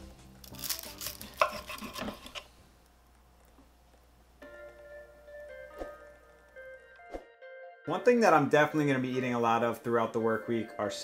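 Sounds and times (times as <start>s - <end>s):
soft chime-like music: 4.5s - 11.0s.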